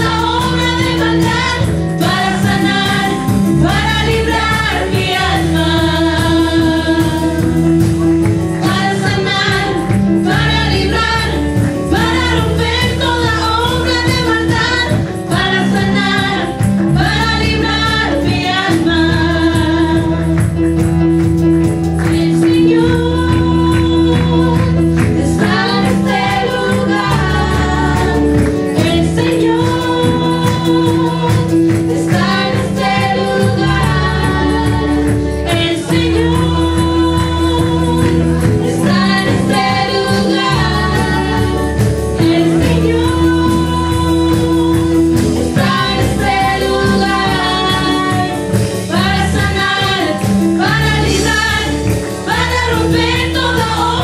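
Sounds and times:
women singing into microphones: 0:00.0 - 0:20.9, 0:22.0 - 0:54.0
keyboard accompaniment: 0:00.0 - 0:54.0
light percussion beat: 0:00.0 - 0:54.0
sustained bass line: 0:00.0 - 0:54.0.

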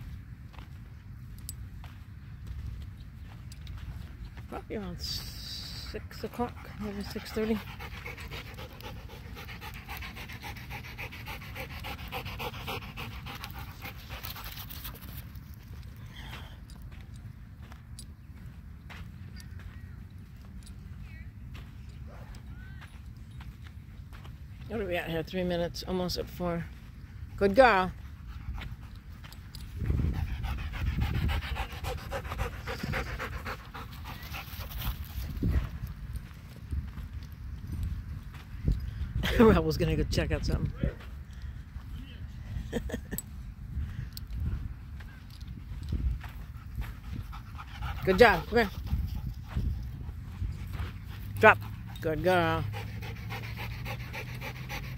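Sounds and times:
dog panting rapidly: 0:05.9 - 0:16.4, 0:27.3 - 0:35.9, 0:45.4 - 0:54.9.

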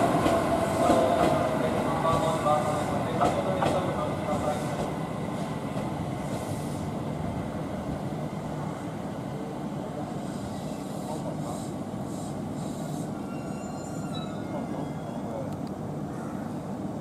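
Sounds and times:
electric train rumbling: 0:00.0 - 0:17.0
brief high hisses: 0:10.2 - 0:14.0.

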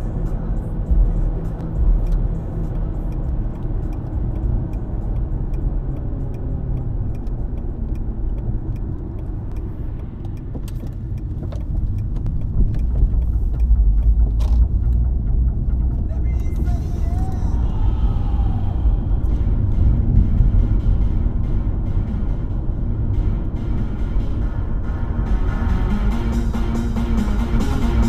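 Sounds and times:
car rumble: 0:00.0 - 0:28.0
faint ticking: 0:00.3 - 0:18.5.

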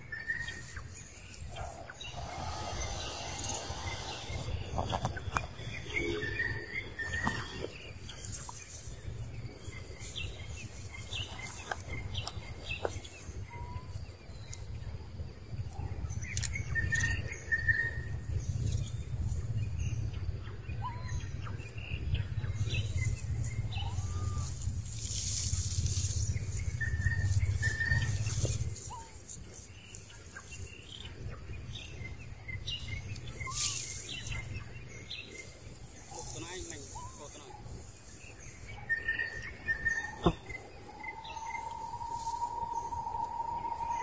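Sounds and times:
steady low rumble: 0:00.0 - 0:13.5, 0:37.0 - 0:44.0
high animal chirps and calls: 0:23.7 - 0:24.8, 0:33.4 - 0:34.0.

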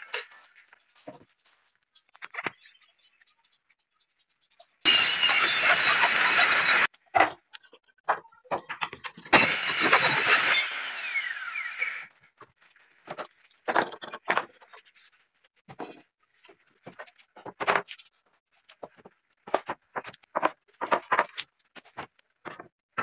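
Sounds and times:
circular saw: 0:04.9 - 0:06.9, 0:09.3 - 0:12.1
wooden boards knocking and scraping: 0:13.0 - 0:14.9, 0:15.7 - 0:18.0, 0:18.8 - 0:23.0.

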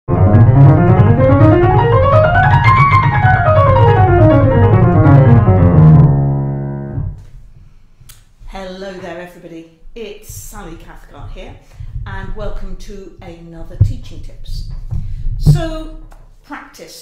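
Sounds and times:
grand piano scale and chord: 0:00.1 - 0:07.2.

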